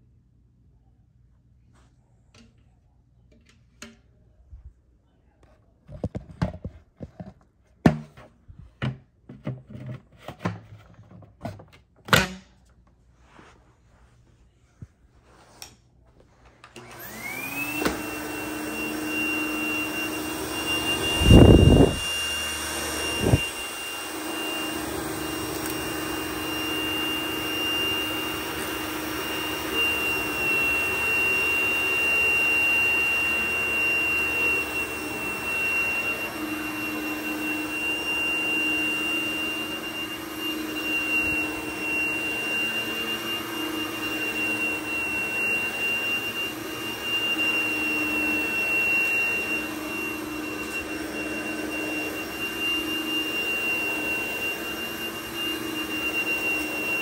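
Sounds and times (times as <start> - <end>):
vacuum cleaner motor drone: 16.7 - 57.0.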